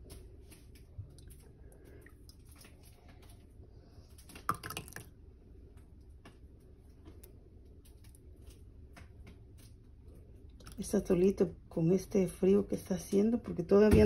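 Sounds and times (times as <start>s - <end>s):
atole pouring and dripping: 0.0s - 5.3s.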